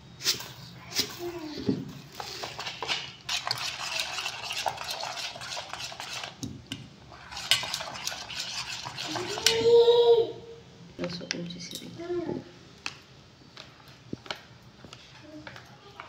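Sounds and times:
spoon stirring batter in bowl: 0.2s - 9.9s.

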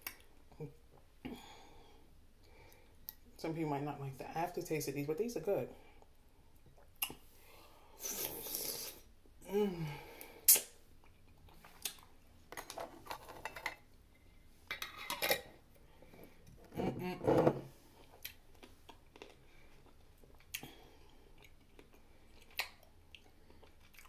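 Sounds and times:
person humming: 9.4s - 10.1s
wet chewing: 18.0s - 24.0s.

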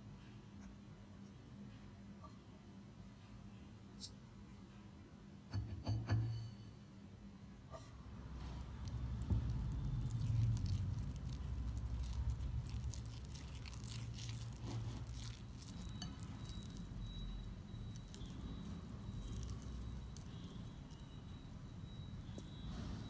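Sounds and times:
batter squelching in glass bowl: 8.3s - 22.7s
faint steady high tone: 15.4s - 23.0s.

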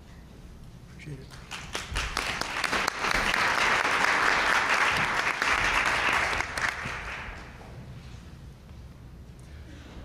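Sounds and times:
audience applauding: 1.3s - 7.6s.

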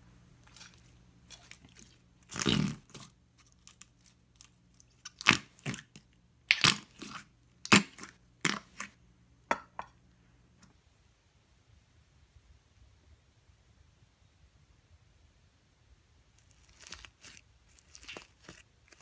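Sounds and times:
slime squelching: 0.4s - 9.0s, 16.4s - 19.0s.

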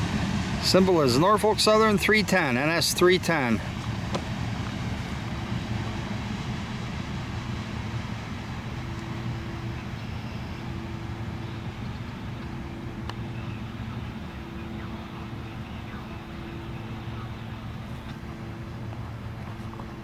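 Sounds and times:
freight train rumbling past: 0.0s - 20.0s.

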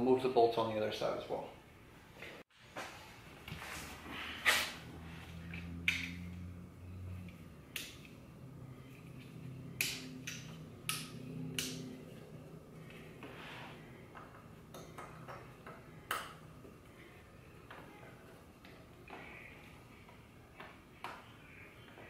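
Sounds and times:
wiring connectors clicking: 9.8s - 11.9s.

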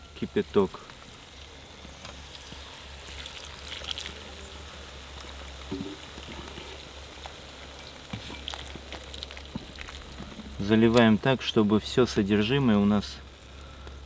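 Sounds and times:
meat sizzling and crackling: 0.0s - 14.0s
water pouring from a kettle: 2.2s - 4.4s.

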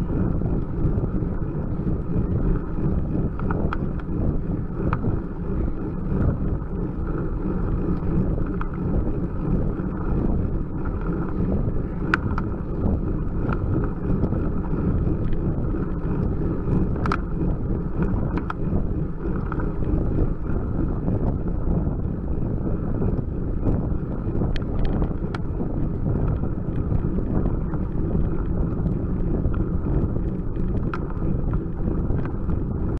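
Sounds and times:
wind rumble on microphone: 0.0s - 32.9s
sharp ticks: 16.9s - 17.2s.

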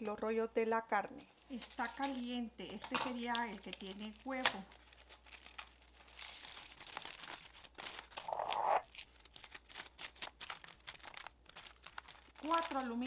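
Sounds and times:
aluminium foil crinkling: 1.1s - 13.0s.

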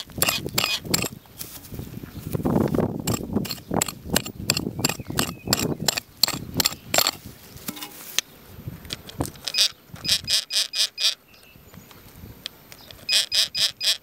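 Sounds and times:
dry grass crackling: 0.0s - 10.1s.

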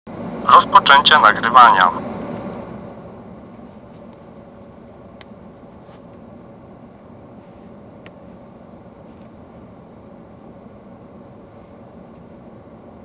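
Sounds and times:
car cabin low hum: 0.1s - 13.0s.

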